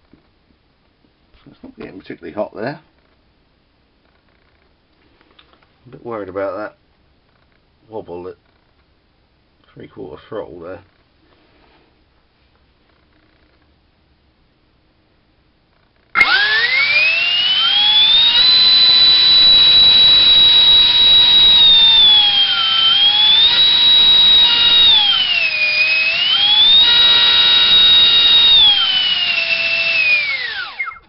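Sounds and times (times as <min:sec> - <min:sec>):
electric ducted fan whining: 0:16.1 - 0:31.0.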